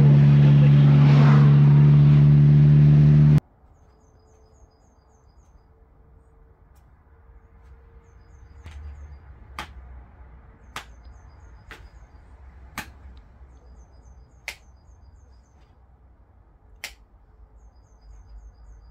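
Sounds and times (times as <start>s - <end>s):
low hum: 0.0s - 3.4s.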